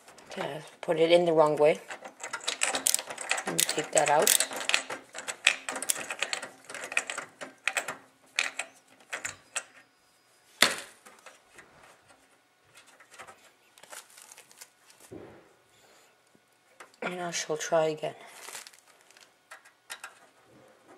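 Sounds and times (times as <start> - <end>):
screwdriver clicking and scraping metal: 0.0 - 9.8.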